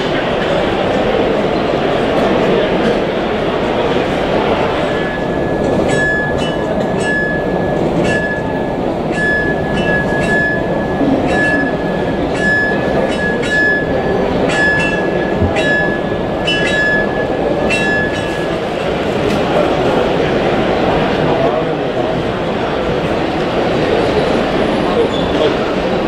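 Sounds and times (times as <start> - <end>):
exhibition hall hubbub: 0.0 - 26.0
high ringing tone: 4.9 - 18.6.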